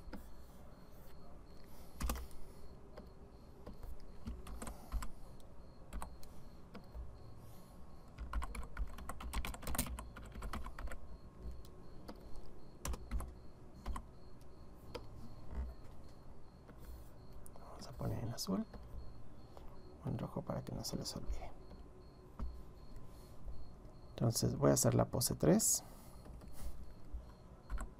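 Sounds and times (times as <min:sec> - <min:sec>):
keyboard typing: 0:01.5 - 0:07.0, 0:08.0 - 0:19.8, 0:26.2 - 0:27.9.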